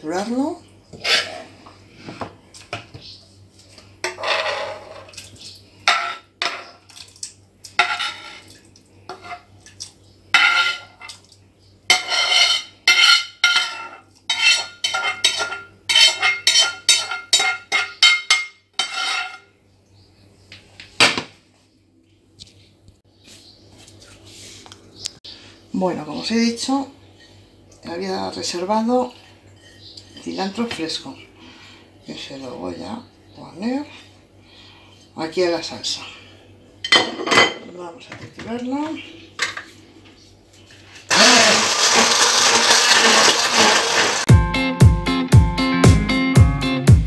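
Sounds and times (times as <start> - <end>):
utensil scraping a frying pan: 0.9 - 1.6, 4.0 - 5.1, 5.8 - 6.7, 7.8 - 8.5, 9.1 - 9.5, 10.4 - 11.1, 11.9 - 19.5.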